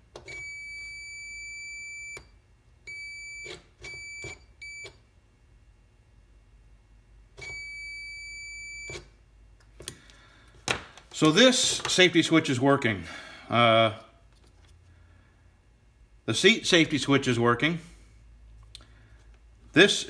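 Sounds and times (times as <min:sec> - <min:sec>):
multimeter continuity beeps: 0:00.3 - 0:05.0, 0:07.4 - 0:09.1.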